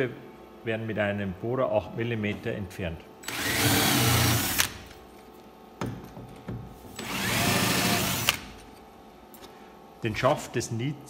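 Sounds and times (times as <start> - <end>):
cordless drill drilling rivets: 3.2 - 4.8, 7.0 - 8.5.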